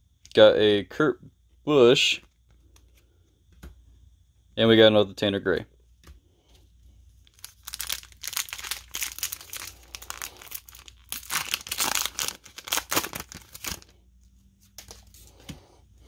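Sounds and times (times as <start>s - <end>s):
card pack wrapper crinkling: 7.2s - 14.0s.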